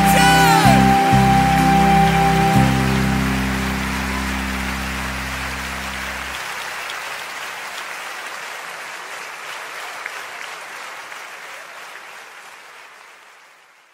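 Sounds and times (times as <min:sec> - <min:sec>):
audience applauding: 0:00.0 - 0:13.9.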